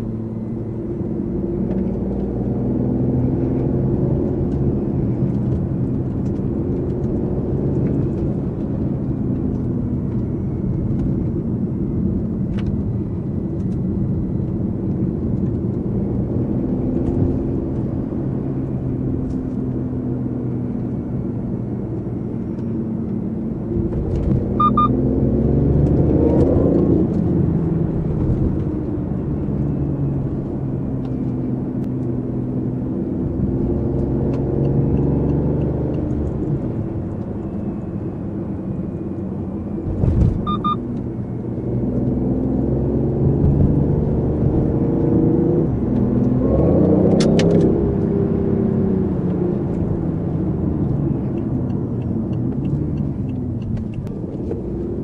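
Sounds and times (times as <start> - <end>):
car engine droning: 0.0 - 55.0.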